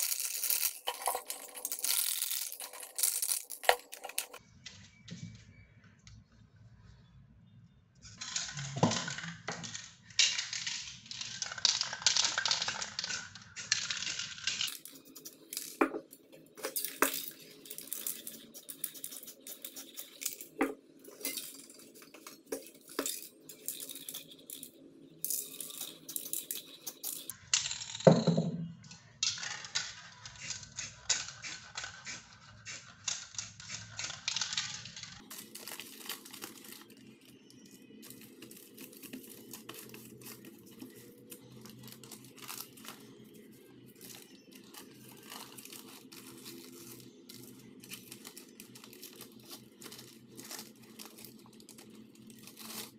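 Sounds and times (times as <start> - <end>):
plastic wrapper crinkling: 0.0 - 4.4, 35.2 - 43.4, 44.0 - 52.9
spray cans clicking and clattering: 0.0 - 4.4, 11.3 - 27.3
spray paint hissing: 17.6 - 20.4, 30.4 - 34.4.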